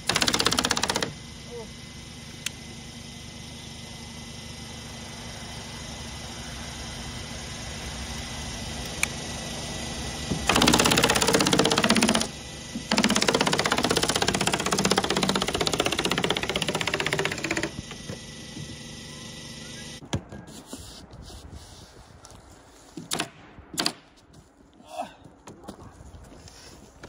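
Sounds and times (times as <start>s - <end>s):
pneumatic stapler firing: 10.3s - 18.2s, 23.0s - 24.1s.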